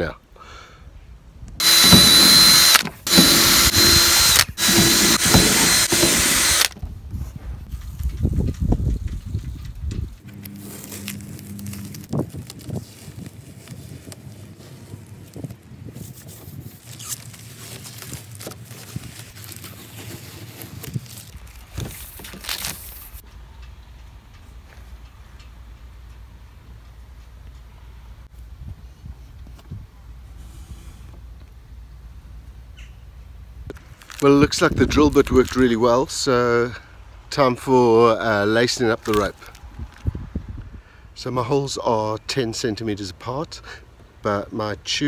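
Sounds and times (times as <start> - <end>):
cordless drill boring wood: 1.6 - 6.8
tape ripping off: 10.2 - 14.6, 15.3 - 23.2, 39.0 - 40.0
tape crinkling in hand: 10.2 - 23.2, 33.7 - 35.9, 38.7 - 40.1.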